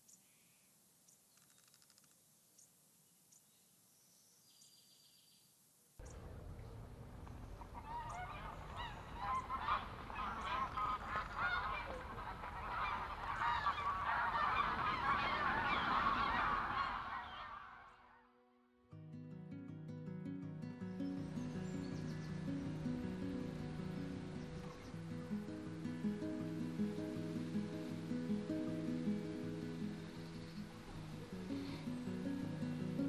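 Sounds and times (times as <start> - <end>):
faint bird chirps: 0.0 - 6.8, 27.7 - 33.0
flock of birds calling: 7.2 - 18.2, 21.2 - 33.0.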